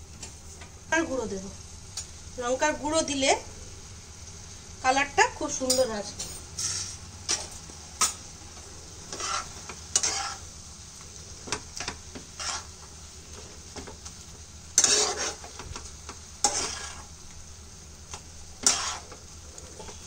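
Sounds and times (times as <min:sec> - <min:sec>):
food sizzling: 0:00.0 - 0:20.0
spatula scraping a frying pan: 0:06.6 - 0:08.2, 0:09.0 - 0:14.1, 0:14.7 - 0:17.2, 0:18.5 - 0:20.0.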